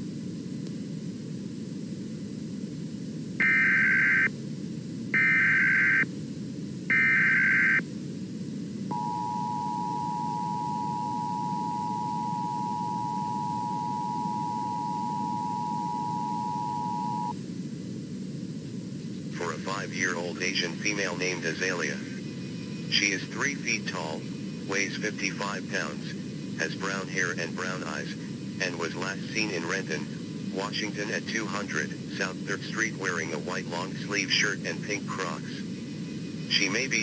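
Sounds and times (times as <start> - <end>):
background noise: 0.0 - 37.0
buzzy data burst screech: 3.4 - 4.3, 5.2 - 6.1, 6.9 - 7.8
two-tone attention signal: 3.4 - 4.3, 5.2 - 6.0, 6.9 - 7.8, 8.9 - 17.3.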